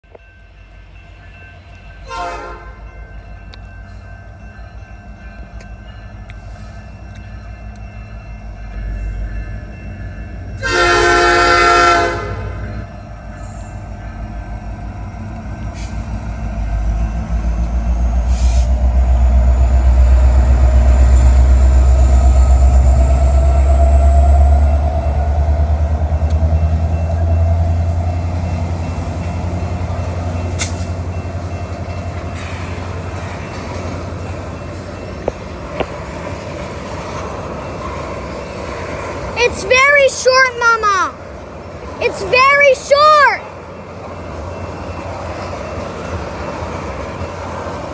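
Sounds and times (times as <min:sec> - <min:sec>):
locomotive engine rumbling: 0:00.0 - 0:47.9
train cars rolling on track: 0:00.0 - 0:47.9
locomotive air horn blast: 0:02.0 - 0:02.8, 0:10.6 - 0:12.6.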